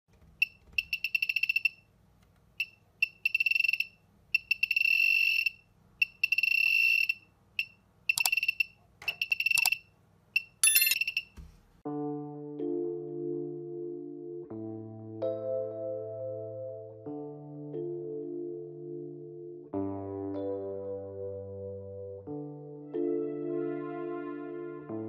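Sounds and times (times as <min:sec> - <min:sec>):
high-pitched buzzer beeping: 0:10.6 - 0:11.1
background music: 0:11.9 - 0:25.0.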